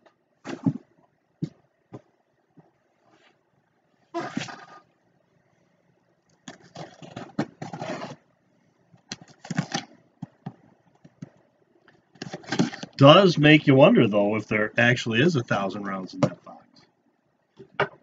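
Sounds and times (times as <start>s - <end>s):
cardboard scraping and rustling: 6.5s - 8.2s.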